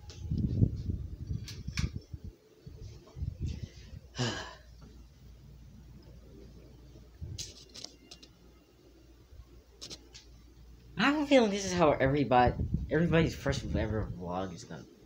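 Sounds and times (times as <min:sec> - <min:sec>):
phone rustling and clicking: 0:07.4 - 0:08.4, 0:09.8 - 0:10.3.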